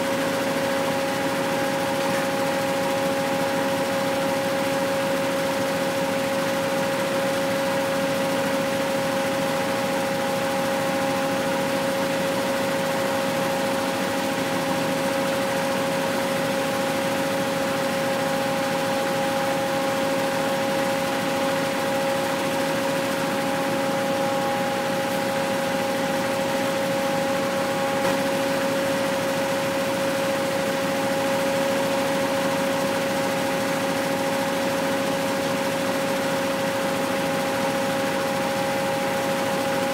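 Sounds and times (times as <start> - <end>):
machine whining: 7.2 - 33.5.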